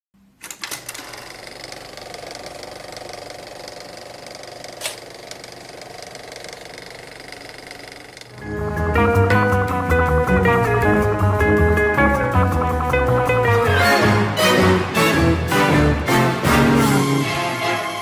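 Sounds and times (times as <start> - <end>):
film projector clattering: 0.4 - 8.4.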